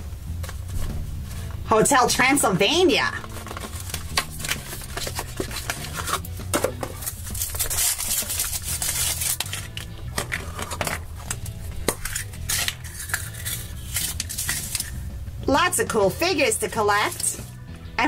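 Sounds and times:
cardboard box handled: 3.2s - 7.7s
chocolate shell cracking: 3.3s - 15.0s
plastic capsule clicking apart: 9.3s - 14.9s.

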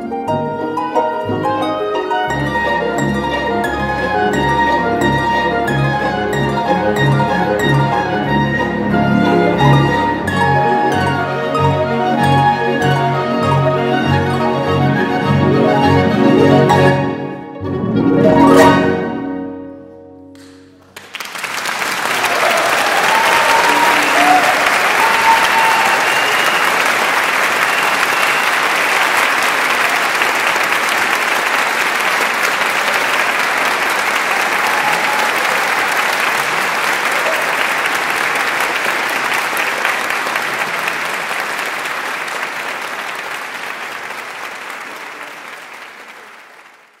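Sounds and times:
audience applauding: 20.4s - 47.0s.

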